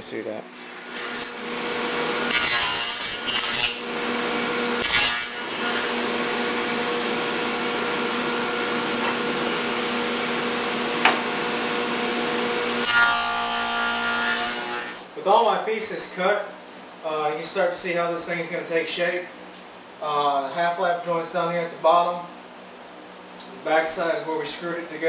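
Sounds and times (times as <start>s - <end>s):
saw cutting wood: 0.6s - 15.1s
table saw running: 0.6s - 15.1s.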